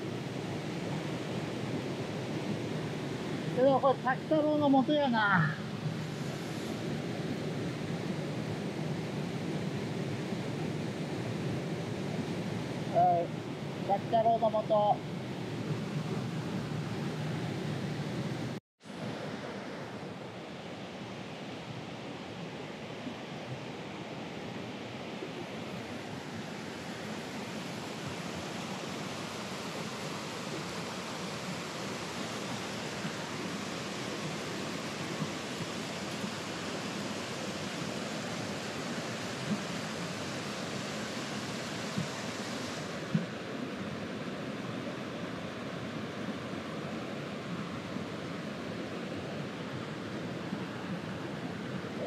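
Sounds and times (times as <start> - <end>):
stream rushing over rocks: 18.9 - 52.0.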